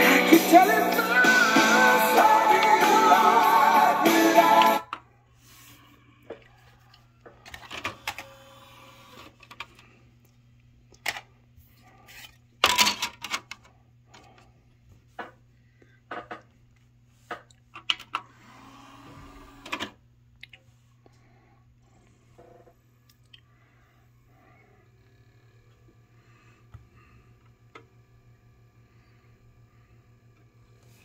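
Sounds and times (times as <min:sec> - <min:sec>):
faint electrical hum: 0:04.8 - 0:31.0
disc tray motor whirring: 0:07.8 - 0:09.4, 0:18.3 - 0:19.7, 0:24.6 - 0:31.0.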